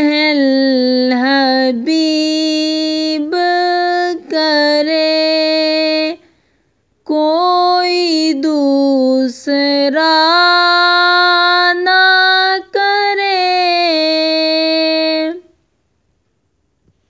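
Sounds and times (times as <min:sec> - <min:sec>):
person singing devotional song: 0:00.0 - 0:15.6
singer breathing: 0:06.2 - 0:06.9.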